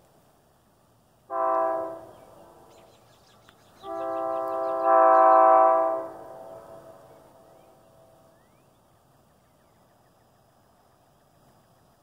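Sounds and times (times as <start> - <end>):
locomotive air horn blasts: 1.3 - 2.7, 3.8 - 8.2.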